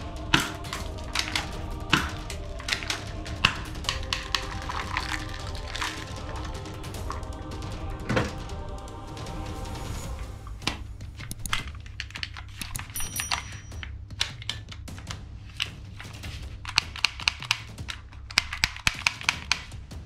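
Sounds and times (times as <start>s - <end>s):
toy pistol clicking and clattering: 11.2s - 14.7s, 16.6s - 19.7s.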